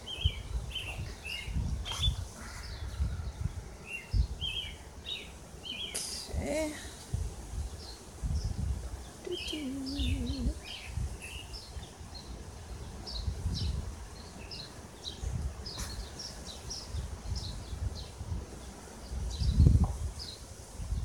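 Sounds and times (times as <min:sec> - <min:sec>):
small birds chirping: 0:00.0 - 0:21.0
microphone handling noise: 0:00.6 - 0:03.3.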